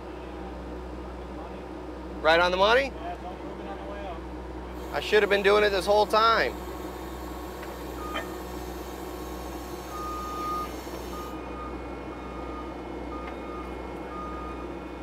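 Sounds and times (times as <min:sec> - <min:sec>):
diesel engine running: 0:00.0 - 0:15.0
backup alarm beeping: 0:07.9 - 0:14.7.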